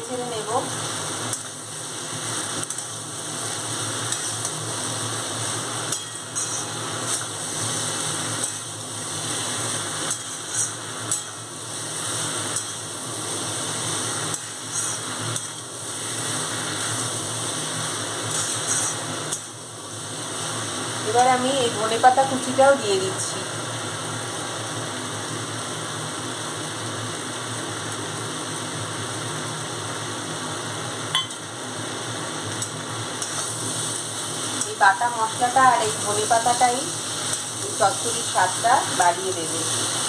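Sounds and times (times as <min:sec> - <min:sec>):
vegetables sizzling: 0:00.0 - 0:40.0
metal spatula scraping pan: 0:05.9 - 0:07.2, 0:10.1 - 0:11.4, 0:14.1 - 0:15.7, 0:18.3 - 0:19.5.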